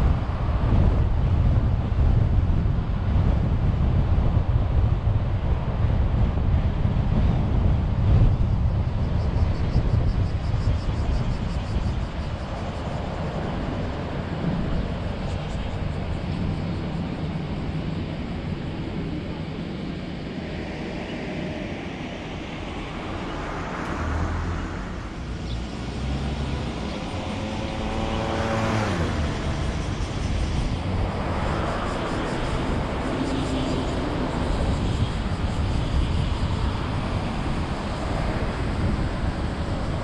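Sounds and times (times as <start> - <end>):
car road and engine noise: 0.0 - 40.0
vehicles passing by: 11.1 - 40.0.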